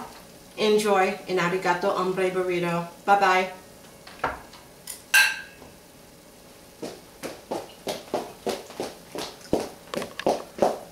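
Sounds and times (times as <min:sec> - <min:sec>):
footsteps walking away: 0:06.8 - 0:10.9.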